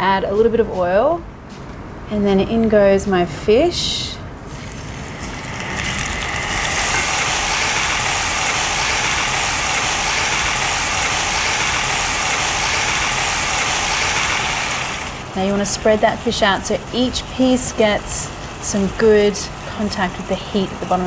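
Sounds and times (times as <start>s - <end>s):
fish sizzling in hot oil: 4.5s - 15.4s.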